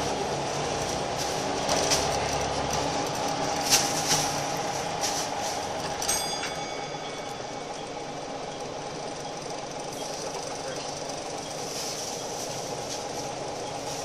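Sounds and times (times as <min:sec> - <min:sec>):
bus diesel engine and road noise: 0:00.0 - 0:14.0
bus body knocks and rattles: 0:01.4 - 0:07.1.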